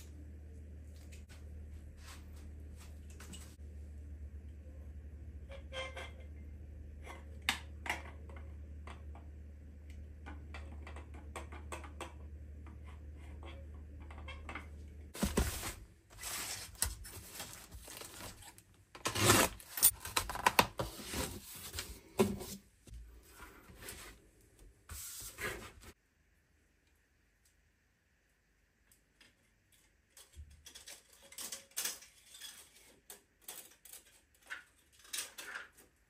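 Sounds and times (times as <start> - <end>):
low hum: 0.0 - 5.6.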